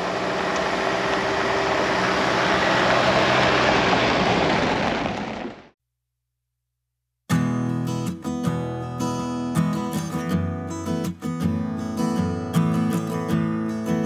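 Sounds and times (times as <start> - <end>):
road noise: 0.0 - 5.8
vehicle engine hum: 0.0 - 5.8.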